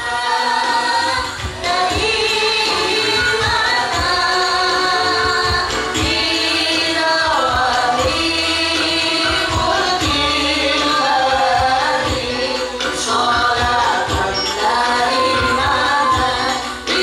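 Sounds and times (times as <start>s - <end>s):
amplified band accompaniment: 0.0s - 17.0s
woman singing into microphone: 0.0s - 17.0s
steady thumping beat: 1.2s - 12.4s.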